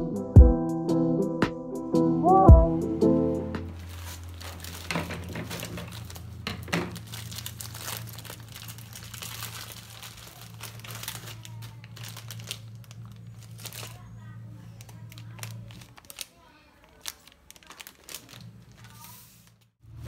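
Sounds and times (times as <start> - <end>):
plastic bag ripping: 3.7 - 14.2, 14.8 - 19.7
plastic bag crinkling: 3.7 - 19.7.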